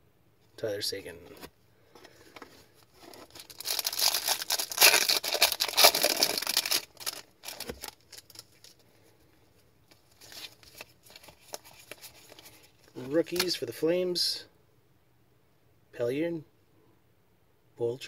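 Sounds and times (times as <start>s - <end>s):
foil wrapper tearing and crinkling: 3.0s - 8.8s
cards sliding and rustling: 9.9s - 13.6s.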